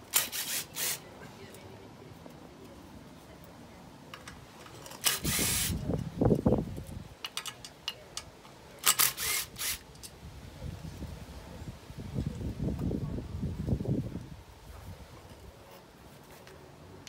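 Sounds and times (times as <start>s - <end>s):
power driver spinning bolts: 4.2s - 5.8s.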